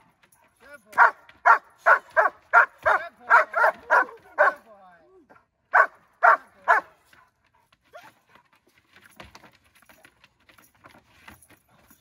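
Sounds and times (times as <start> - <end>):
dog barking: 1.0 - 4.6, 5.7 - 6.9.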